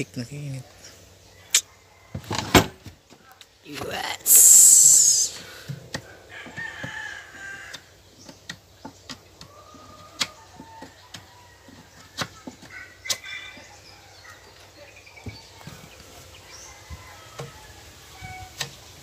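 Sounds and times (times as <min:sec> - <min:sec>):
chickens clucking: 0:05.3 - 0:19.0.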